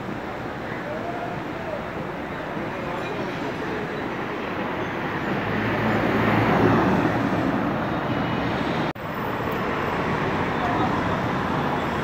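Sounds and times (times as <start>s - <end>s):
street traffic noise: 0.0s - 12.0s
vehicle passing: 5.3s - 8.9s.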